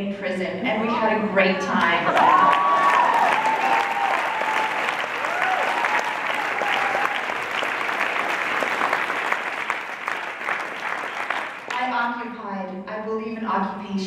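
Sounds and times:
voices whooping: 0:02.1 - 0:07.5
audience applauding: 0:02.1 - 0:11.8.

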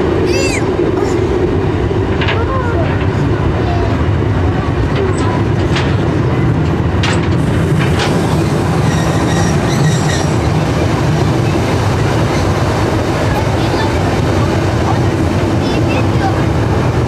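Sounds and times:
train running gear rumble: 0:00.0 - 0:17.0
faint high wheel squeal: 0:08.8 - 0:10.4.

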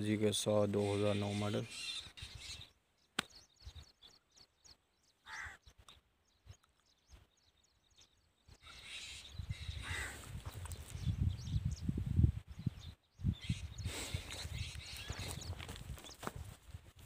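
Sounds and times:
birds chirping: 0:00.0 - 0:16.6
wind rumbling on microphone: 0:08.5 - 0:17.0.

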